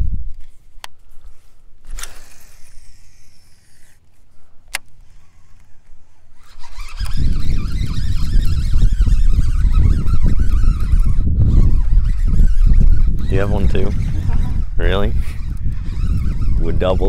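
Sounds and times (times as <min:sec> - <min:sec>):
reel spool whirring: 0:01.3 - 0:17.0
fishing reel click: 0:01.9 - 0:04.0, 0:04.7 - 0:14.4.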